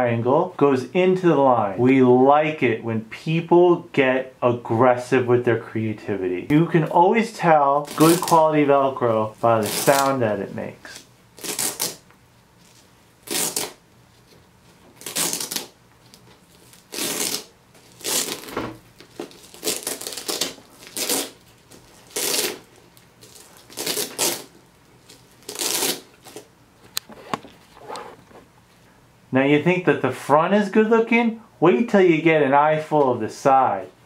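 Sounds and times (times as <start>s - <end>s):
hook-and-loop straps ripping open: 7.8s - 8.4s, 9.6s - 10.2s, 11.4s - 12.0s, 13.2s - 13.8s, 15.0s - 15.7s, 16.6s - 26.5s.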